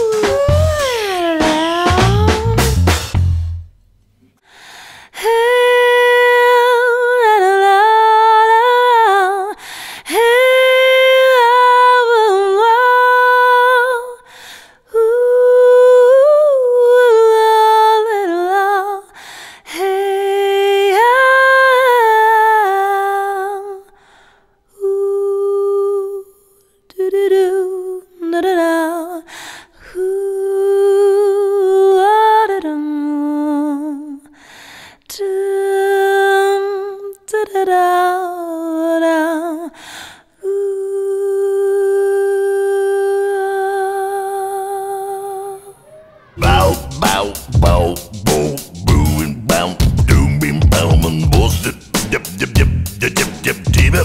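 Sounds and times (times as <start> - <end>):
woman humming: 0.0 - 2.7.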